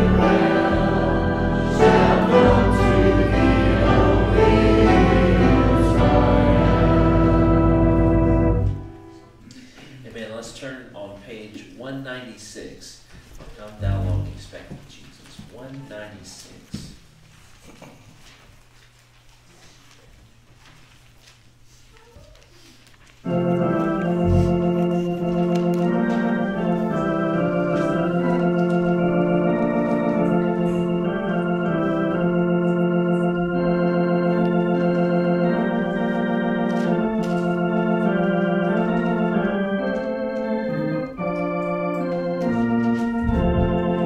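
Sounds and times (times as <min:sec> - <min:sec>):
deep bass organ note: 0:00.0 - 0:09.1, 0:23.3 - 0:24.9, 0:26.0 - 0:44.0
church organ chords: 0:00.0 - 0:09.4, 0:23.2 - 0:44.0.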